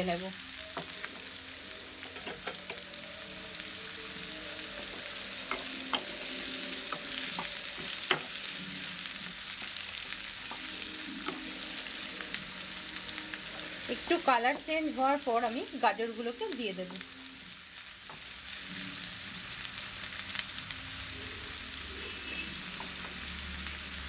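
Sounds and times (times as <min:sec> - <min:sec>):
onions sizzling in hot oil: 0:00.0 - 0:24.0
spatula tapping and scraping pan: 0:02.1 - 0:02.8.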